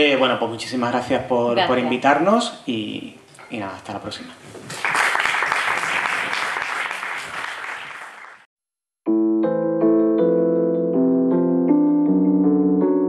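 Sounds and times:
audience applauding: 4.7s - 8.5s
slow piano melody: 9.1s - 13.0s.

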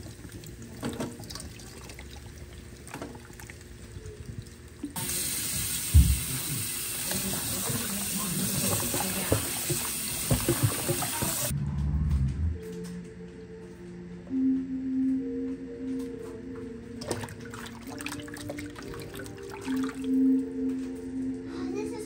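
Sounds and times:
tap water running into sink: 0.0s - 11.5s, 17.0s - 20.2s.

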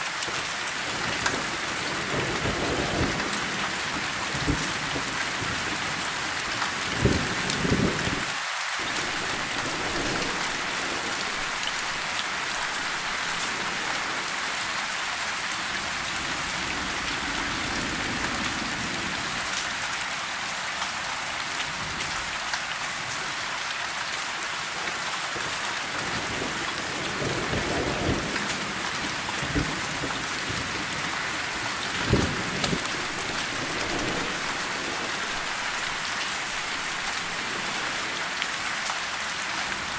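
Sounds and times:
rain on tree leaves: 0.0s - 39.9s.

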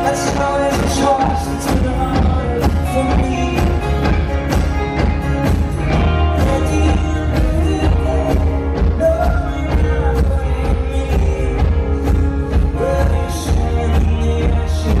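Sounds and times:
drums: 0.0s - 15.0s
electric bass: 0.0s - 15.0s
man singing: 0.0s - 15.0s.

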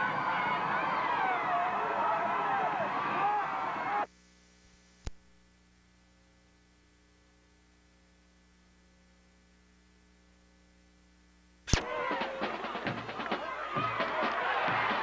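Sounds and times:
tape hiss: 0.0s - 15.0s
faint mains hum: 0.1s - 11.8s.

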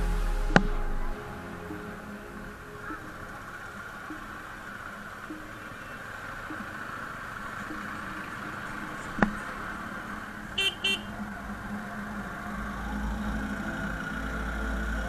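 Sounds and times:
horn toots: 10.6s - 11.2s.

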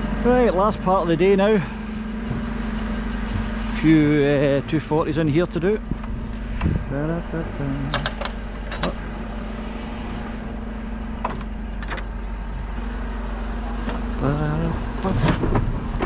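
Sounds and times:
lorry engine idling: 0.0s - 16.0s
person speaking: 6.6s - 8.2s.

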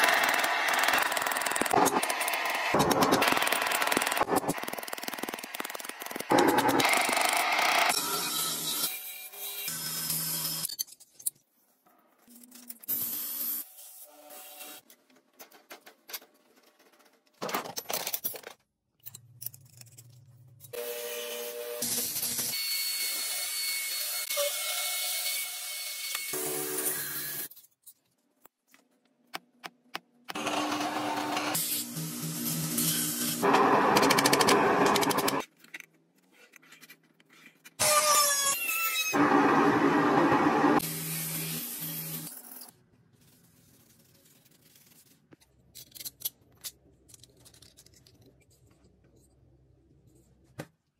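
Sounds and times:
bandsaw whining cutting steel: 30.4s - 35.4s.

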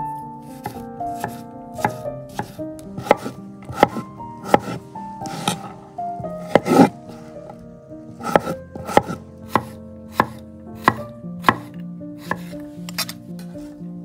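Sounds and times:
faint background music: 0.0s - 14.0s
knife strikes on wooden board: 0.6s - 5.7s, 6.4s - 6.9s, 8.2s - 13.2s.

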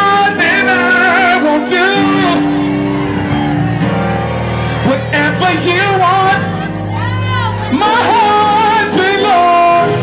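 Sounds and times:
man singing into microphone: 0.0s - 2.6s, 4.8s - 6.7s, 7.6s - 10.0s
keyboard: 0.0s - 10.0s.

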